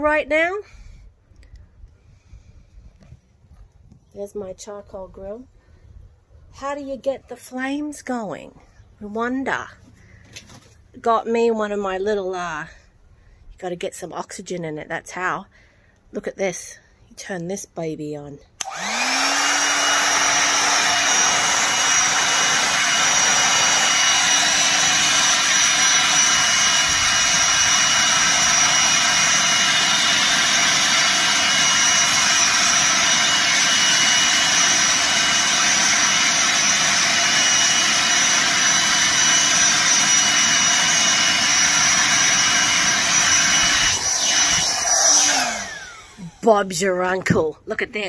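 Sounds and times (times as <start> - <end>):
electric air pump whining: 18.6 - 46.8
rushing air: 40.6 - 46.2.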